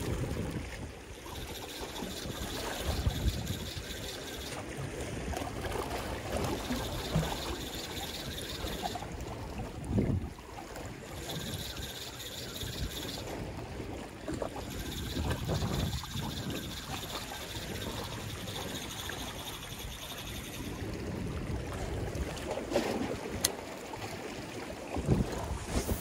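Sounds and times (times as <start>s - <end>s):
wind buffeting microphone: 0.0s - 4.1s, 9.2s - 10.4s, 14.4s - 19.1s, 24.9s - 26.0s
water lapping against concrete: 0.0s - 26.0s.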